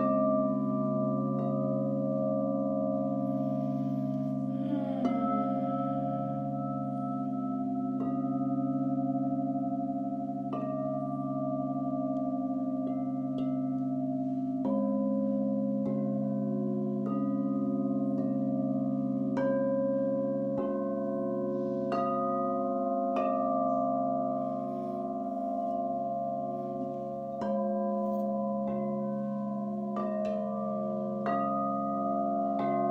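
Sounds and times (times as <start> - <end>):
singing bowls ringing: 0.0 - 32.9
steady low drone: 0.7 - 9.6.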